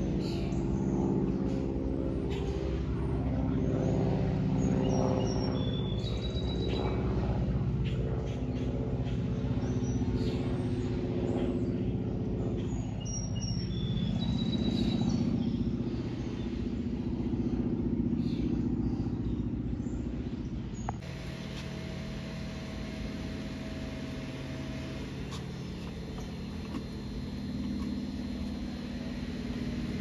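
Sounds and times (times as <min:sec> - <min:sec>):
propeller aircraft engine droning: 0:00.0 - 0:30.0
bird chirps: 0:12.6 - 0:16.5, 0:24.4 - 0:29.2.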